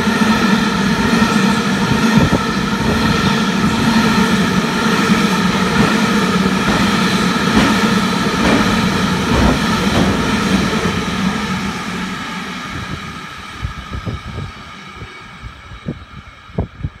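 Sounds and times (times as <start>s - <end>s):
train wheels clattering on rails: 1.0s - 12.1s.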